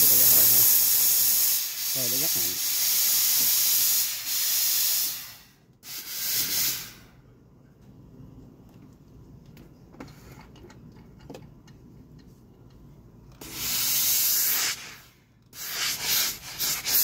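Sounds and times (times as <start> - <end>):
steam iron hissing: 0.0 - 7.1, 13.4 - 17.0.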